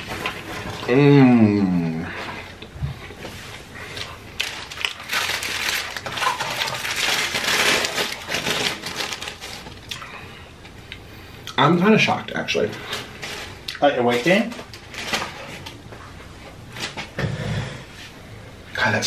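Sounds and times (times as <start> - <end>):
paper wrapper crinkling: 3.9 - 9.9, 12.0 - 15.8.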